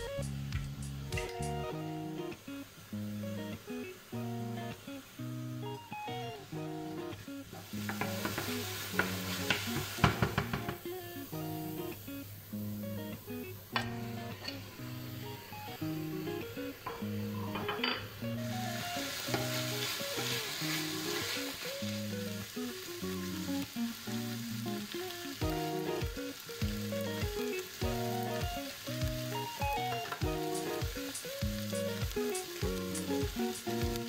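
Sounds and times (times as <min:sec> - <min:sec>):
low music beat: 0:00.0 - 0:02.4, 0:25.4 - 0:34.0
plucked background music: 0:00.0 - 0:34.0
meat sizzling in a pan: 0:02.6 - 0:34.0.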